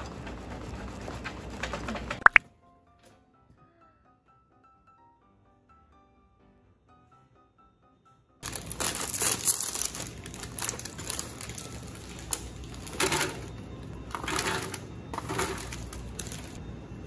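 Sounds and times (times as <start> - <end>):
plastic wrappers crinkling: 8.4 - 16.6.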